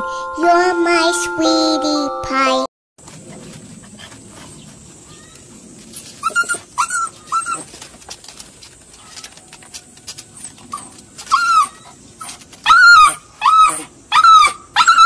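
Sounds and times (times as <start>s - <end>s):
puppy whimpering: 6.2s - 7.9s, 10.4s - 15.0s.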